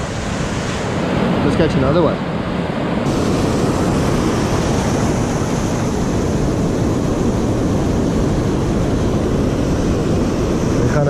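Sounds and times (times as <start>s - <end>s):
surf breaking in shallow water: 0.0s - 11.0s
wind on microphone: 0.0s - 11.0s.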